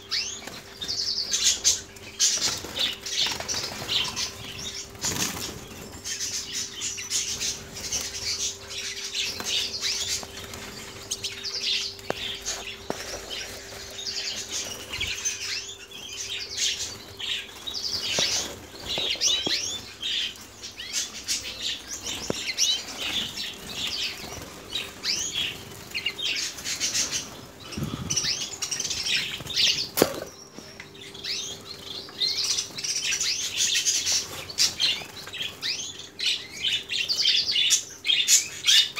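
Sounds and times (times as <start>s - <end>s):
canaries chirping: 0.0s - 38.9s
birds fluttering wings: 0.1s - 6.4s, 7.2s - 15.4s, 16.5s - 30.4s.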